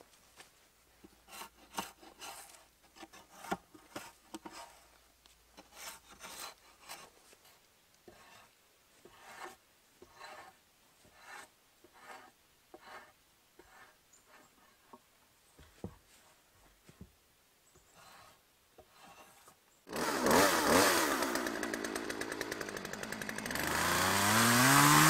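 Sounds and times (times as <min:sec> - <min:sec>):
blade scraping bark off log: 0:09.1 - 0:14.0.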